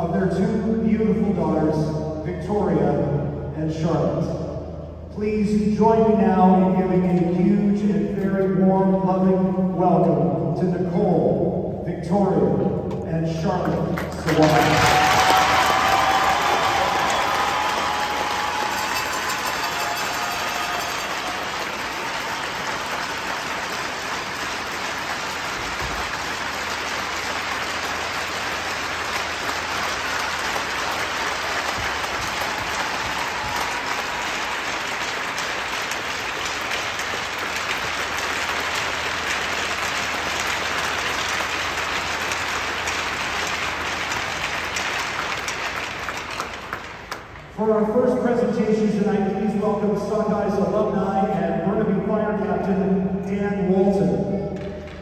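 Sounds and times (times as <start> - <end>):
crowd applauding: 13.9 - 47.6.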